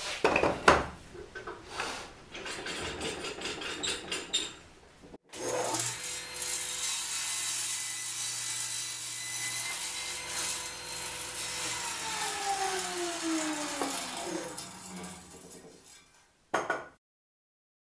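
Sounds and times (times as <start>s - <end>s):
table saw cutting wood: 5.3s - 16.0s
saw blade winding down whine: 11.6s - 15.4s.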